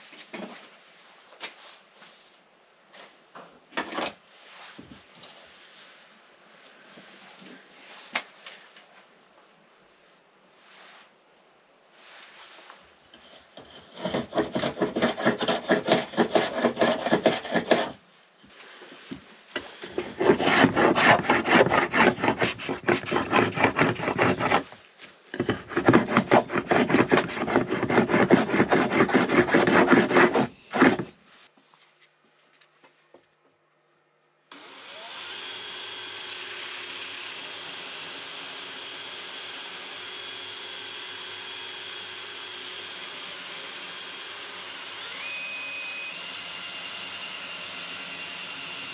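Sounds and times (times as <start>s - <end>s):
blade scraping wood: 13.1s - 18.0s, 19.5s - 31.2s
cordless drill whining: 34.5s - 48.9s.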